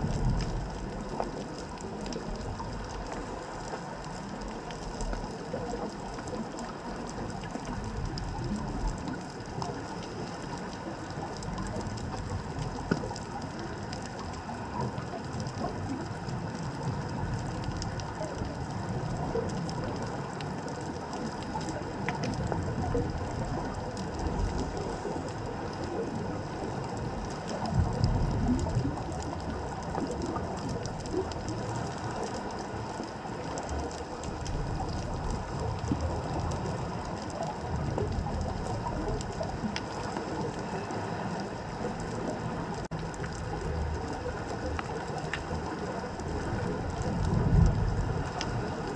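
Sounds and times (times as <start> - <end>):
crackle of small clicks: 0.0 - 48.9
underwater rumble of moving water: 0.0 - 48.9.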